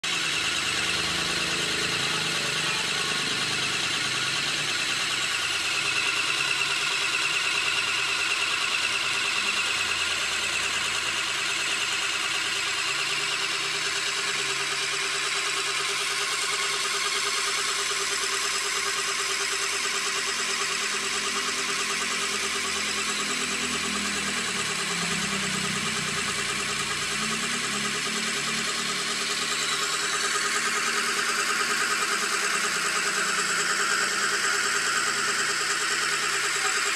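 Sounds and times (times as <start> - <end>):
scroll saw motor whirring: 0.0 - 36.9.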